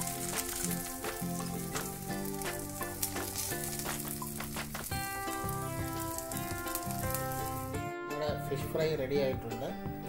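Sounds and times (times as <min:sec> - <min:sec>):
fish sizzling in oil: 0:00.0 - 0:07.8
background music: 0:00.0 - 0:10.0.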